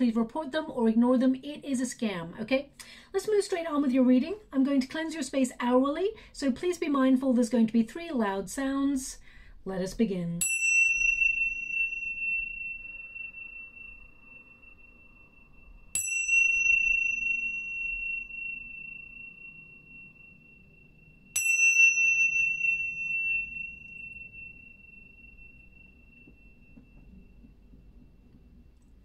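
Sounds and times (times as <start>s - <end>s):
tingsha cymbals ringing: 10.4s - 29.0s.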